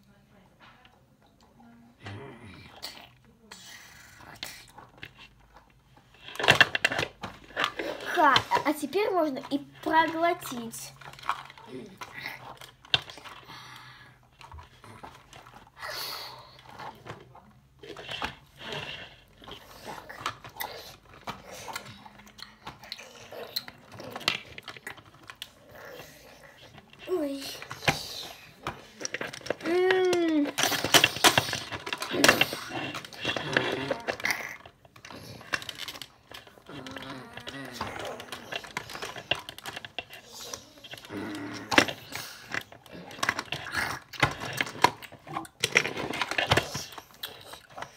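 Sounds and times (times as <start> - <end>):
plastic toys clicking: 0.8 - 47.9
low growling voice: 1.9 - 3.0, 36.6 - 38.8, 40.8 - 42.1.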